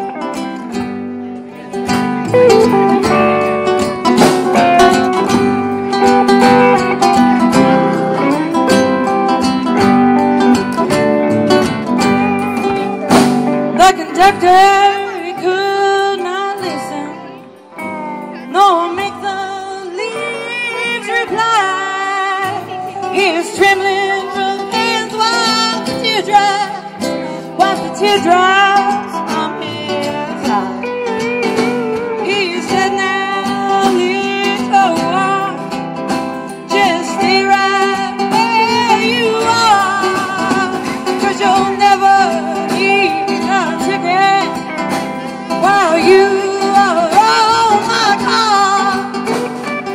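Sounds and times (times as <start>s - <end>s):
live country band playing: 0.0s - 49.9s
woman singing: 12.0s - 49.9s.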